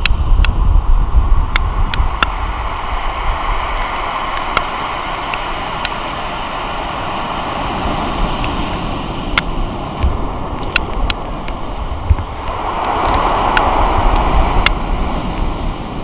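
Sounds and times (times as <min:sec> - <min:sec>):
surf hissing on shingle: 0:00.0 - 0:16.0
wind buffeting microphone: 0:00.0 - 0:16.0.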